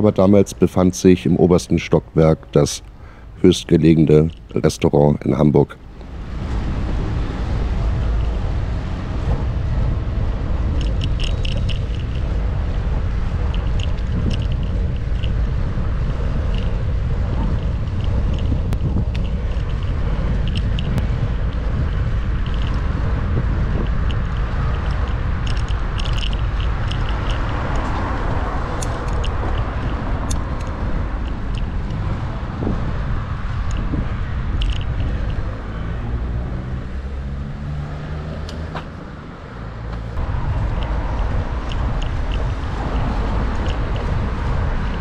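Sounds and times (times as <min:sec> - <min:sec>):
car traffic: 0:00.0 - 0:45.0
road and wind rumble: 0:00.0 - 0:45.0
bicycle clicks and rattles: 0:07.4 - 0:35.9, 0:40.0 - 0:45.0.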